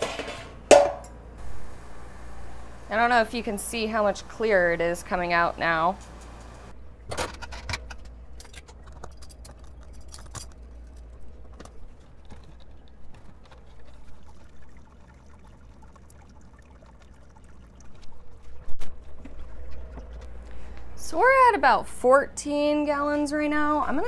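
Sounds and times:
low steady hum: 0:00.0 - 0:24.0
hoses and gear clicking and knocking: 0:07.3 - 0:14.5
liquid pouring and trickling: 0:08.7 - 0:20.6.

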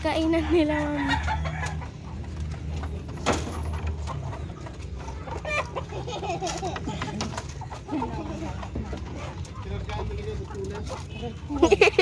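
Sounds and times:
chickens clucking: 0:00.0 - 0:12.0.

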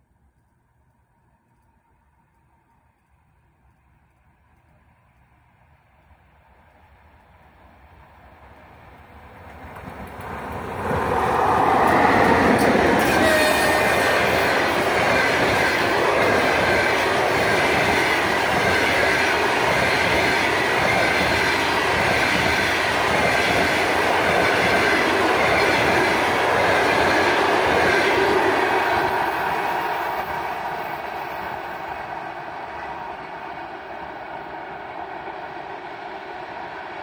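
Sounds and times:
electric locomotive passing: 0:00.2 - 0:37.0.

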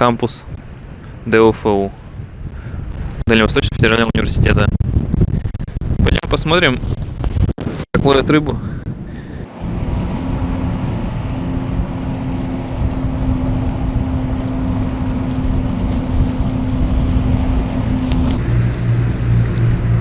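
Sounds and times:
water noise: 0:00.0 - 0:20.0
wind: 0:00.0 - 0:20.0
low pulsing engine: 0:08.5 - 0:20.0
ship engine droning: 0:08.8 - 0:20.0.

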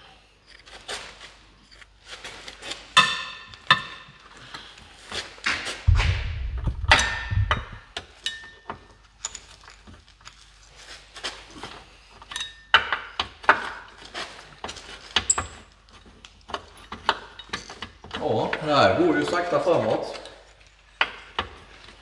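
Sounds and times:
low rumble: 0:05.9 - 0:07.9.

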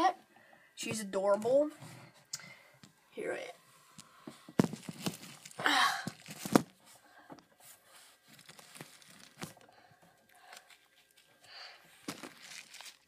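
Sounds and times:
phone rustling and scraping: 0:03.6 - 0:09.7, 0:12.0 - 0:13.0.

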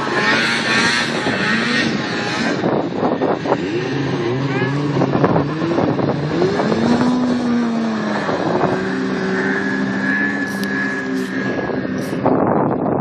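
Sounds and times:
snowmobile engine revving: 0:00.0 - 0:12.4.

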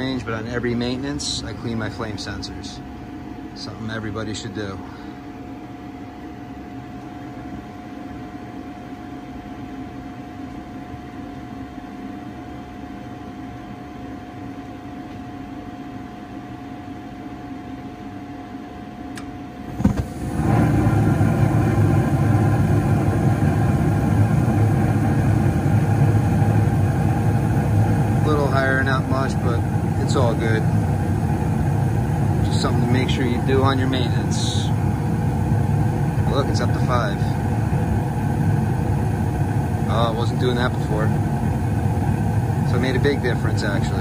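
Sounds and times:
inducer motor humming with whine: 0:00.0 - 0:44.0
gas burners rushing: 0:19.2 - 0:44.0.

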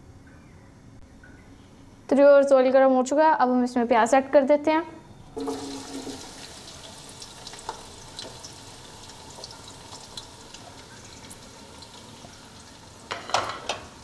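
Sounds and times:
onions sizzling in oil: 0:05.4 - 0:14.0.

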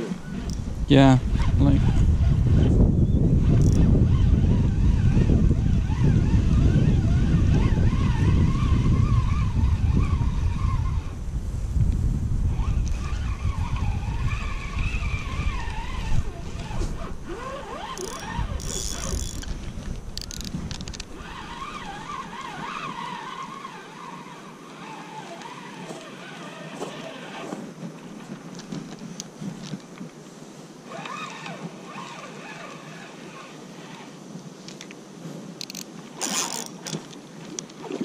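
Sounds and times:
fishing reel gears whirring: 0:00.0 - 0:11.1, 0:12.5 - 0:27.6, 0:30.9 - 0:34.2, 0:35.6 - 0:38.0
wind buffeting microphone: 0:00.0 - 0:24.8.

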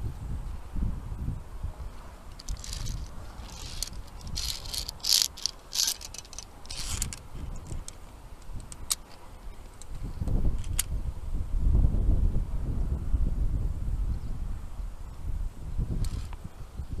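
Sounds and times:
carabiners scraping on steel cable: 0:02.3 - 0:10.0, 0:16.0 - 0:16.4.

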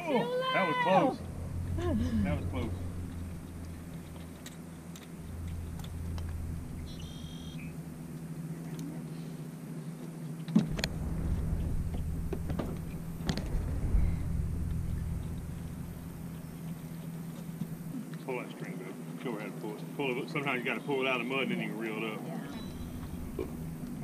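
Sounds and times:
low hum and rumble: 0:00.0 - 0:18.6, 0:22.4 - 0:24.0.

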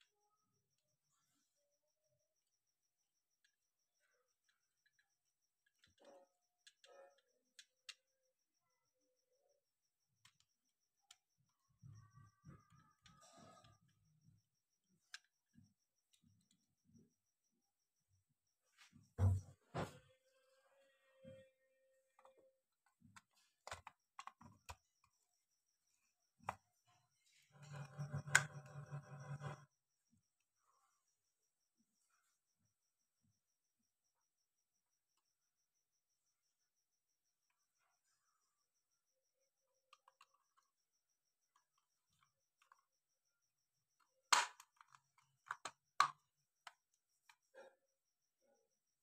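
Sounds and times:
plastic clicks and taps: 0:23.1 - 0:24.8, 0:44.3 - 0:46.8.

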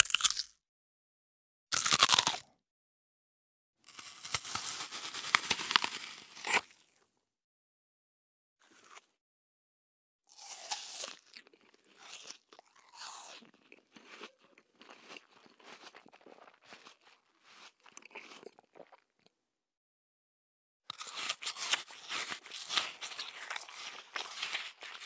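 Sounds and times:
person chewing crunchy food: 0:00.0 - 0:00.6, 0:01.7 - 0:02.6, 0:03.8 - 0:07.1, 0:08.6 - 0:09.2, 0:10.3 - 0:19.4, 0:20.9 - 0:25.0.

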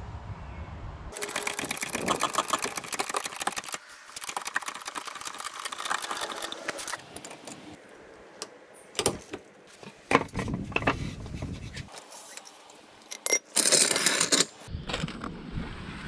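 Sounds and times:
trolley jack clicking and rattling: 0:01.2 - 0:07.6.

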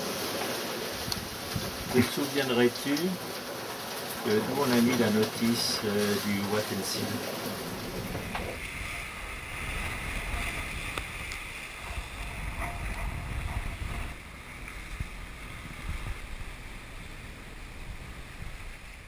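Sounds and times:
rush of wind and sea water: 0:00.0 - 0:02.8, 0:05.2 - 0:19.0
wind rumbling on microphone: 0:00.9 - 0:02.1, 0:07.5 - 0:19.0.

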